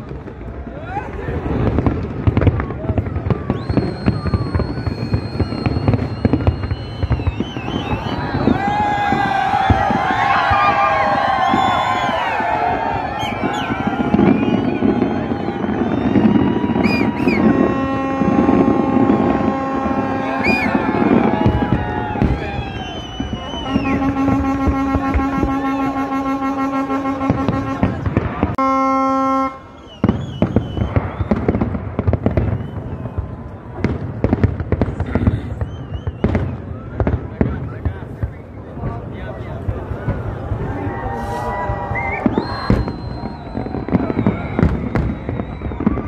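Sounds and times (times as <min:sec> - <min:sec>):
crowd noise: 0:00.0 - 0:46.0
fireworks bursting: 0:00.0 - 0:46.0
short high whistles: 0:03.5 - 0:08.6, 0:22.4 - 0:24.1, 0:29.7 - 0:31.4, 0:35.4 - 0:36.5, 0:41.1 - 0:45.8
ship's horn long note: 0:17.4 - 0:20.7, 0:23.6 - 0:29.7.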